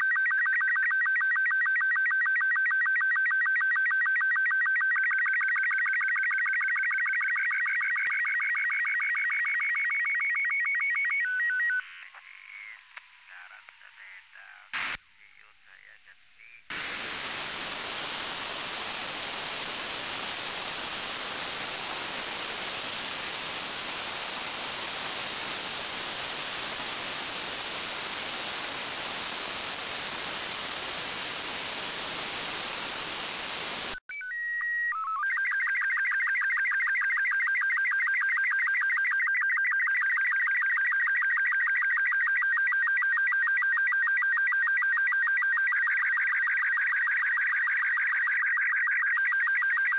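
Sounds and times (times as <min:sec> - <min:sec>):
radio static hiss: 0:11.8 - 0:34.0.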